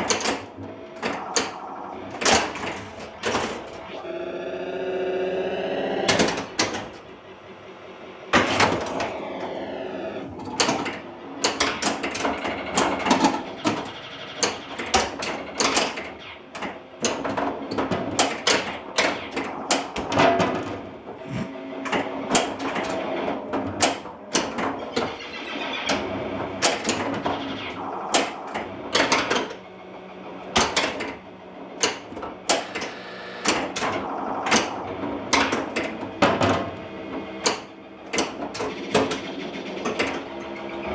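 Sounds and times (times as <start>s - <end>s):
pinball flippers and bumpers clattering: 0.0s - 4.0s, 6.0s - 7.0s, 8.3s - 29.6s, 30.4s - 40.9s
electronic game sound effects: 21.2s - 21.5s.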